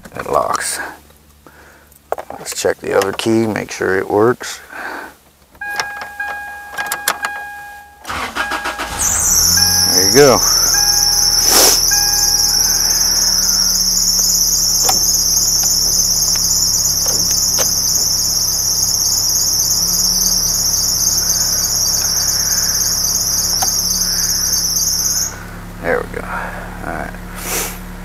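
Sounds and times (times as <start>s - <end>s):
cicada buzzing: 9.0s - 25.4s.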